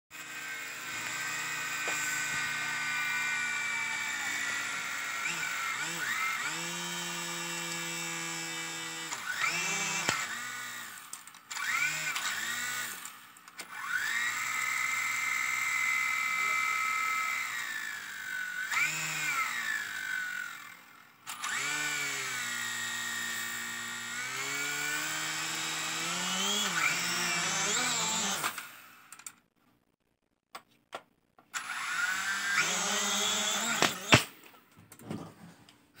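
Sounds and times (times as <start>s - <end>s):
toy drone motors whining: 0.1s - 29.4s, 31.5s - 34.4s.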